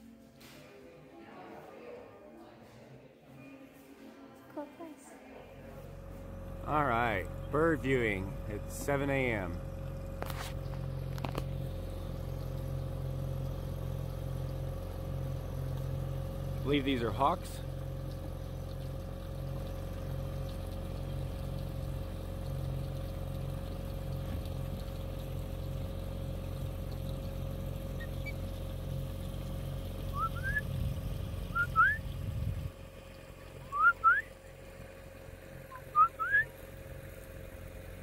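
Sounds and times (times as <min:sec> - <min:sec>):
boat engine humming: 0:05.4 - 0:38.0
osprey whistled chirps: 0:30.1 - 0:30.7, 0:31.5 - 0:32.0, 0:33.7 - 0:34.3, 0:35.7 - 0:36.5.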